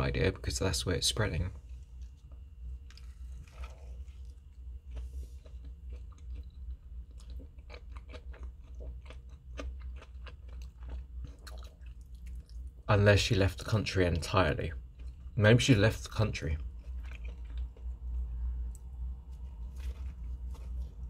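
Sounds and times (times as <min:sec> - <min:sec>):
low steady hum: 0:00.0 - 0:21.0
person chewing food: 0:01.6 - 0:12.8, 0:14.8 - 0:15.4, 0:16.4 - 0:21.0.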